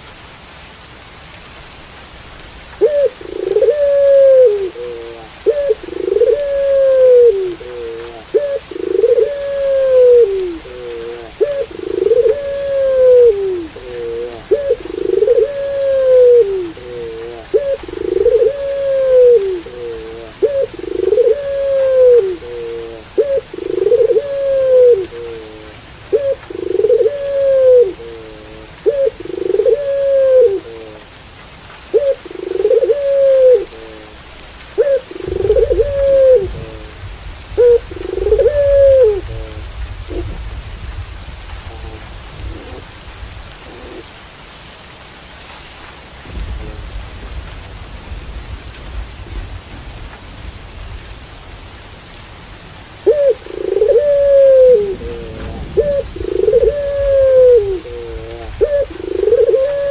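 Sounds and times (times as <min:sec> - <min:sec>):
dove cooing: 0:02.8 - 0:31.1, 0:31.9 - 0:40.5, 0:41.6 - 0:44.2, 0:53.0 - 0:59.9
low rumble: 0:46.3 - 0:49.8, 0:54.7 - 0:58.7.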